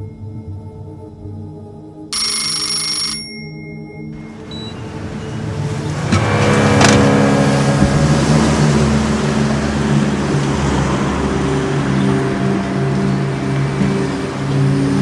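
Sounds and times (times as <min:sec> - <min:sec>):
telephone bell ringing: 0:02.2 - 0:04.8
film score low held tones: 0:03.6 - 0:15.0
rushing noise: 0:04.2 - 0:15.0
sharp hit: 0:05.9 - 0:11.6.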